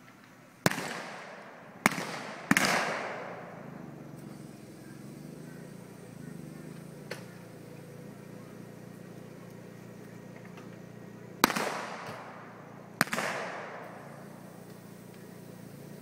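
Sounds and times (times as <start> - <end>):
revolver gunshots with echo: 0.6 - 3.8, 11.4 - 14.6.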